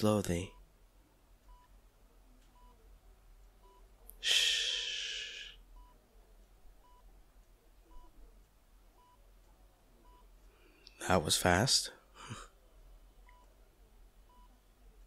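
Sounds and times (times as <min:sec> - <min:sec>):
patient monitor beeping: 0:01.5 - 0:01.8, 0:02.4 - 0:02.8, 0:03.6 - 0:06.0, 0:06.8 - 0:07.1, 0:07.8 - 0:09.4, 0:10.0 - 0:11.1, 0:13.2 - 0:13.6, 0:14.3 - 0:14.6
breathy exhale: 0:04.2 - 0:05.6.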